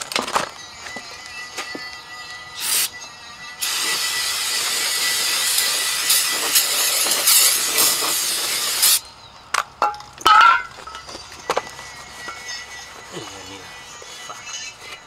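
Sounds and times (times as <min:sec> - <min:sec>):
aerosol spray can hissing: 0:02.6 - 0:02.9, 0:03.6 - 0:09.0.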